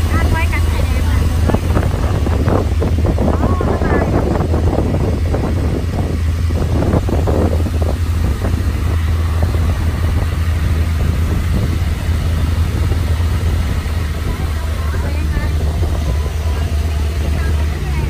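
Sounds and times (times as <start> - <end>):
motorboat engine running: 0.0 - 18.0
water rushing past hull: 0.0 - 18.0
wind buffeting microphone: 0.0 - 18.0.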